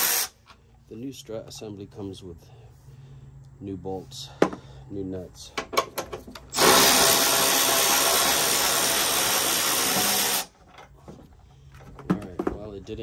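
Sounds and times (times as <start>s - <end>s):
power tool motor whirring: 0.0s - 0.4s, 6.5s - 10.6s.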